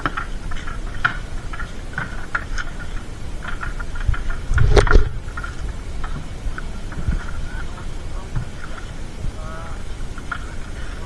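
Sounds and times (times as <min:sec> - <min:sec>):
low rumble: 0:02.9 - 0:10.8.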